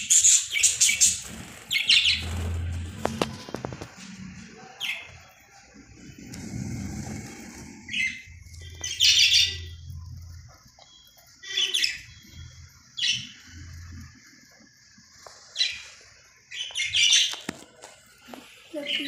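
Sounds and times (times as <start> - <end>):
budgerigars chirping: 0.0 - 2.5, 7.9 - 10.0, 10.8 - 12.4.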